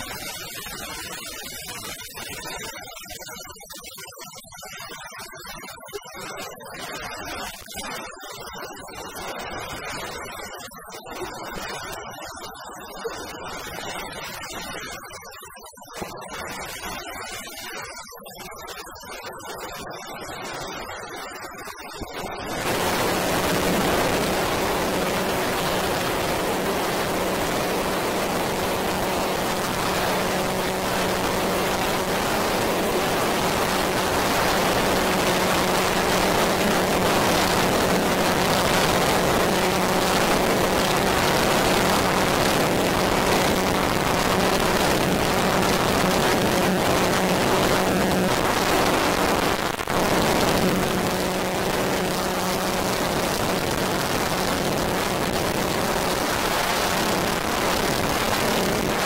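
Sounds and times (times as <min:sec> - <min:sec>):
synthesizer noise drone: 0:22.0 - 0:59.0.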